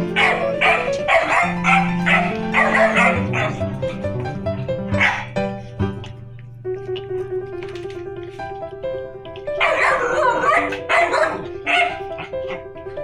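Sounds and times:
dog yips and barks: 0.2 - 3.6, 5.0 - 5.3, 9.6 - 12.6.

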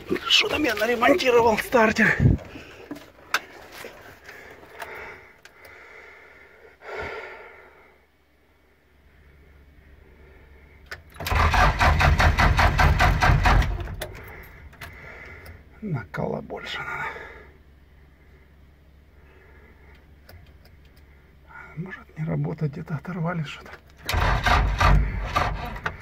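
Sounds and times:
starter motor cranking engine: 10.9 - 15.1, 23.9 - 26.0.

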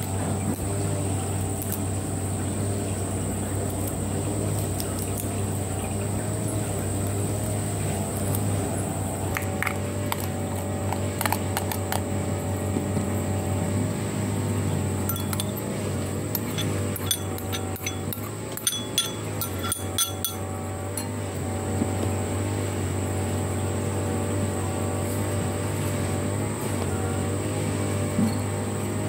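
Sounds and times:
steady background drone: 14.7 - 21.6
utensil clinking on ceramic bowl: 15.1 - 21.2.

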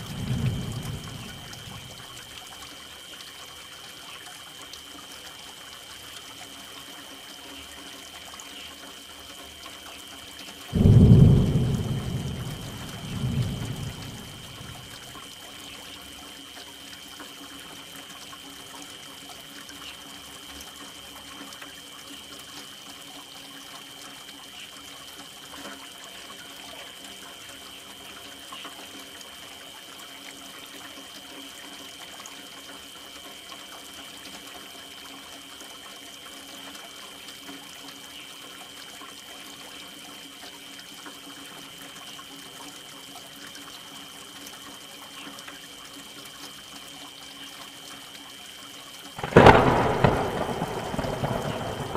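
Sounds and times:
constant high-pitched tone: 0.0 - 39.0
steady rain: 0.0 - 51.9
trickling running water: 0.0 - 51.9.

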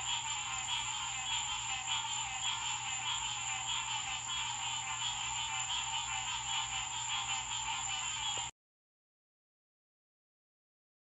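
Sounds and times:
frogs calling: 0.0 - 8.5
steady high-pitched tone: 0.0 - 8.5.

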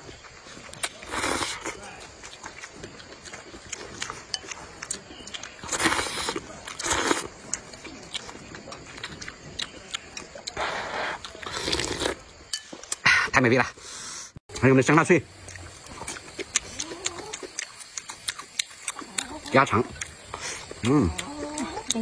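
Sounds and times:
mouth and chewing clicks: 0.2 - 13.0, 15.3 - 22.0
noodles being slurped: 4.9 - 7.6, 10.5 - 12.3.

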